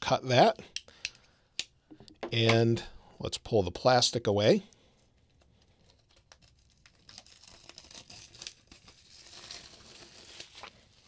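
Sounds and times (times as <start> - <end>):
plastic film crinkling and tearing: 5.7 - 11.0.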